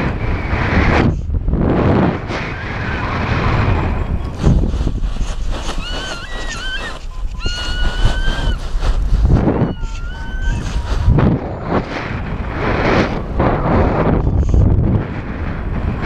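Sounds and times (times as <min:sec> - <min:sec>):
wind rushing over microphone: 0:00.0 - 0:16.0
high thin whistling calls: 0:05.2 - 0:11.2.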